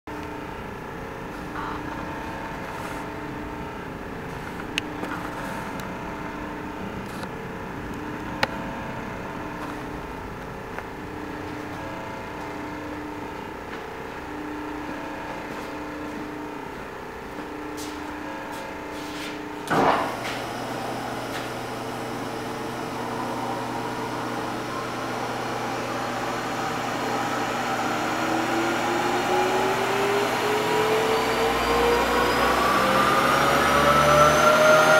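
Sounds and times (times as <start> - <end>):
low motor hum: 0.1 - 34.9
pulsing machine-shop hum: 0.1 - 34.9
milling spindle whine rising: 11.2 - 34.9
sharp clunk: 19.7 - 20.1.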